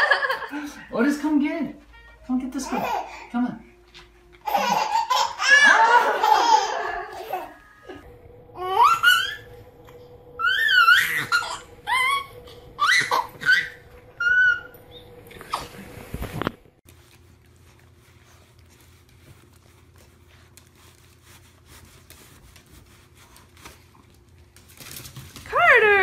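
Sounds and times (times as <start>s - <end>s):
baby laughing squeals: 2.6s - 3.3s, 4.4s - 7.6s, 8.6s - 9.5s, 10.4s - 14.7s.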